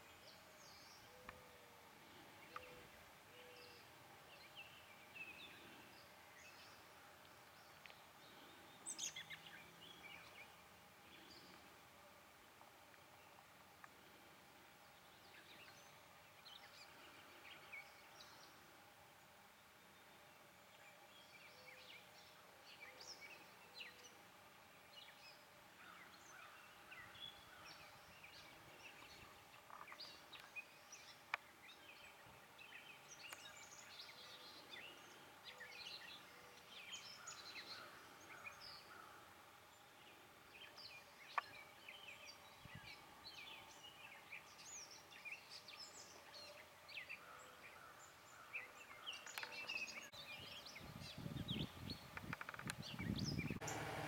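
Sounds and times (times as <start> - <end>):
birds chirping and whistling: 49.0 - 53.9.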